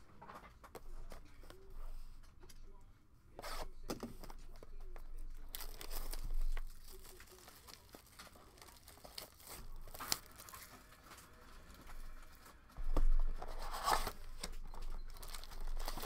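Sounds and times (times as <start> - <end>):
plastic wrap tearing and crinkling: 5.3 - 16.0.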